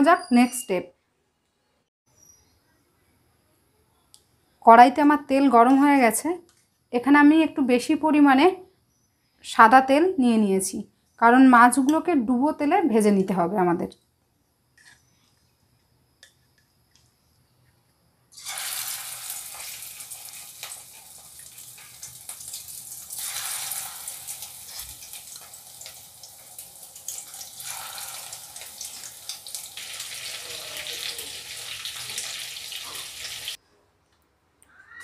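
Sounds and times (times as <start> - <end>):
prawns deep-frying in hot oil: 18.3 - 33.6.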